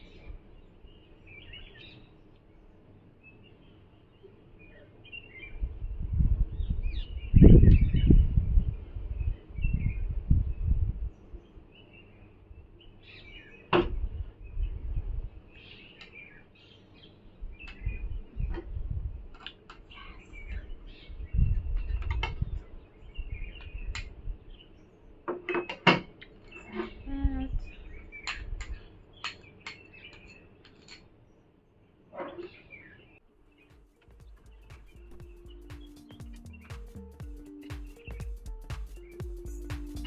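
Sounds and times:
small birds chirping: 0:00.0 - 0:40.0
dull low thumps: 0:33.8 - 0:40.0.

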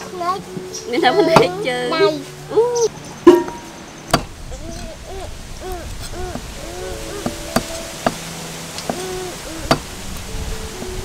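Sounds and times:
bird hooting low calls: 0:02.6 - 0:11.0.

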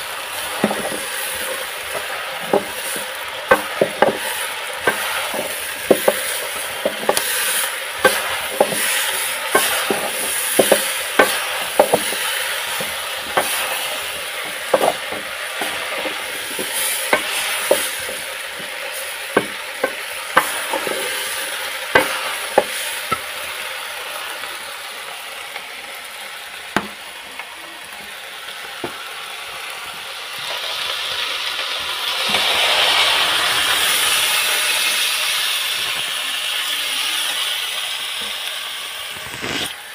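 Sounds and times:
beans frying in oil: 0:00.0 - 0:39.9
metal spoon scraping pot: 0:04.8 - 0:18.7.

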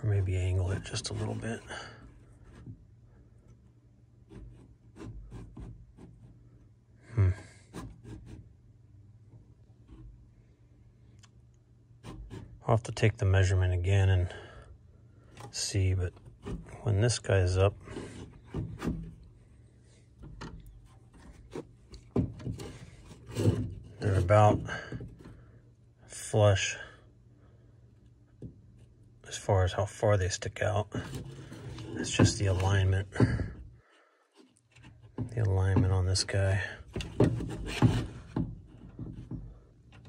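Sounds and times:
rubbing: 0:00.0 - 0:03.0, 0:04.2 - 0:06.6, 0:07.6 - 0:08.6, 0:12.0 - 0:12.7, 0:16.1 - 0:25.5, 0:36.9 - 0:39.6
hands handling car pedals: 0:34.4 - 0:40.0.

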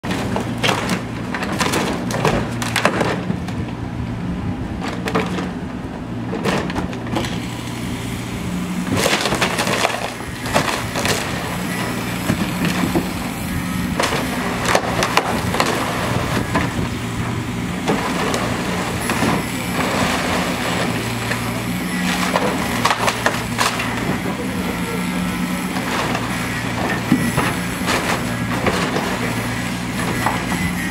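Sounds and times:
boards crashing down: 0:00.0 - 0:03.4, 0:06.4 - 0:07.4, 0:08.9 - 0:11.6, 0:13.9 - 0:16.8, 0:25.7 - 0:30.5
timber cracking and splintering: 0:00.0 - 0:03.4, 0:08.8 - 0:13.3, 0:13.9 - 0:17.0, 0:17.8 - 0:24.5, 0:25.6 - 0:30.9
excavator diesel engine running: 0:00.0 - 0:30.9.

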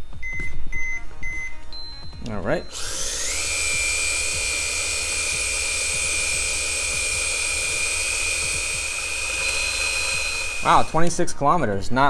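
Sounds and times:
electric motor whine: 0:02.7 - 0:11.2.

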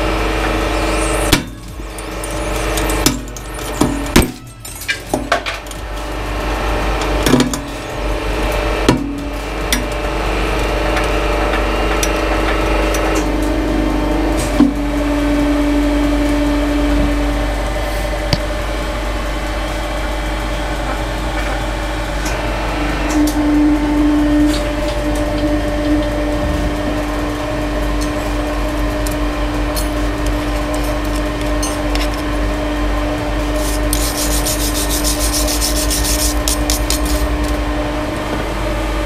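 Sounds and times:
hydraulic press humming: 0:00.0 - 0:39.0.

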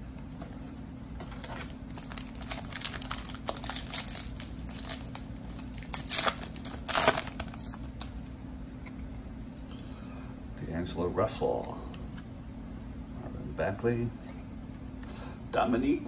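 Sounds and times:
foil wrapper crinkling and tearing: 0:01.3 - 0:08.2.

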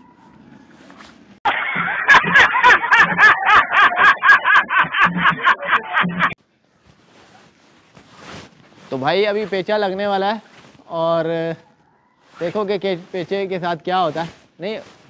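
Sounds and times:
faint outdoor background: 0:00.0 - 0:15.0
man laughing loudly: 0:01.5 - 0:06.4.

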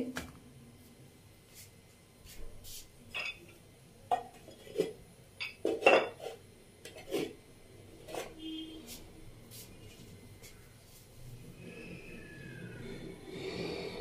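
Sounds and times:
dishes and utensils clinking: 0:03.1 - 0:07.4.

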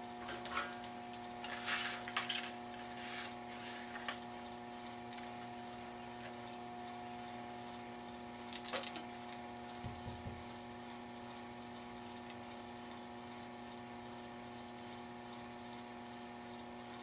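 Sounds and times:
electrical hum: 0:00.0 - 0:17.0
rustles and small clicks: 0:08.5 - 0:09.4.

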